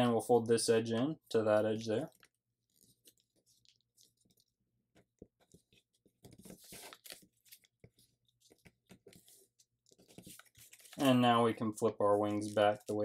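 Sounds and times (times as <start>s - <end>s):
small paper crackles: 2.1s - 4.6s, 5.3s - 11.2s, 11.8s - 13.0s
thin paper rustling: 5.5s - 11.1s.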